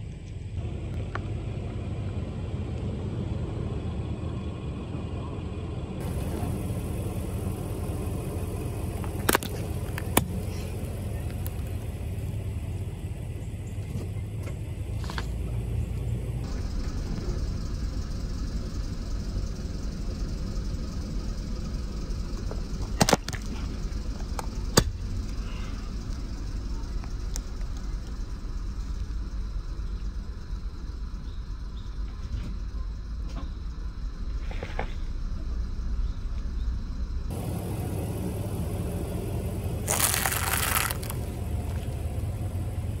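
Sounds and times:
car engine rumbling: 0:00.0 - 0:43.0
plastic pouches bursting under tyre: 0:39.8 - 0:41.8.

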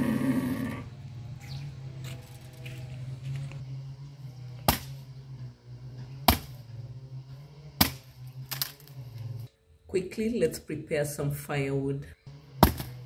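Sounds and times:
axe chopping firewood: 0:04.6 - 0:05.0, 0:06.2 - 0:06.7, 0:07.8 - 0:08.9, 0:12.6 - 0:13.0.

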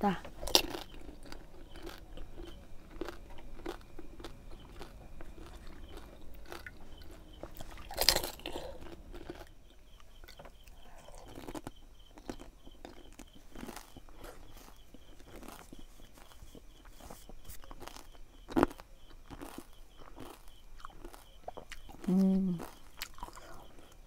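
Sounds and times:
crunchy food chewing: 0:00.0 - 0:24.0.

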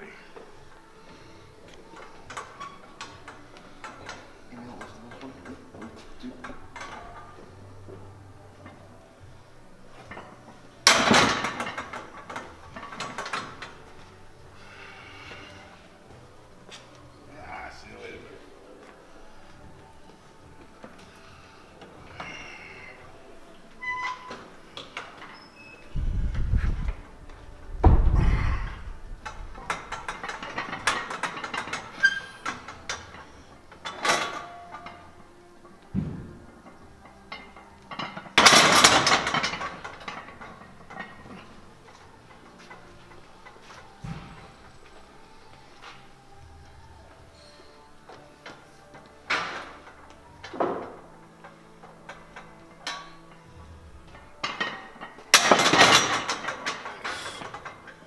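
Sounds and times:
metallic clicks of gym equipment: 0:10.0 - 0:13.8, 0:28.6 - 0:35.2, 0:36.6 - 0:44.6, 0:47.4 - 0:58.0
bar and plates rattling: 0:10.0 - 0:14.2, 0:26.8 - 0:35.4, 0:36.0 - 0:44.8, 0:48.4 - 0:58.0.

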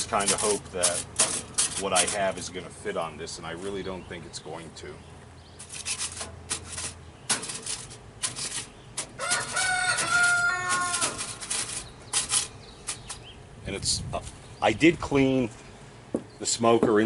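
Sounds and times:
aluminium foil crinkling: 0:00.0 - 0:02.4, 0:05.6 - 0:13.3
metal grate clattering: 0:00.0 - 0:02.7, 0:05.6 - 0:13.4
rooster crowing: 0:09.2 - 0:11.4.

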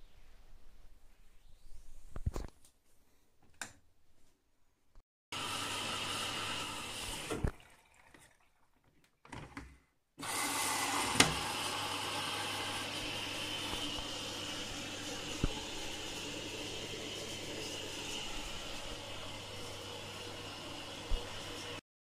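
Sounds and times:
water pouring into washing machine: 0:05.4 - 0:09.3, 0:10.2 - 0:21.8.

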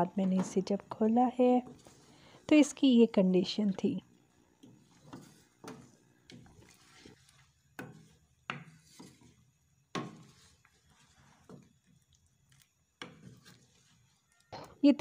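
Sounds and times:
wooden spatula scraping pan: 0:01.6 - 0:02.2, 0:04.6 - 0:11.8, 0:13.0 - 0:14.2.

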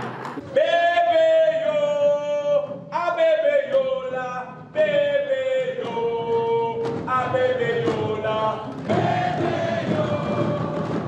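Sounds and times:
voices singing long notes: 0:03.4 - 0:11.0.

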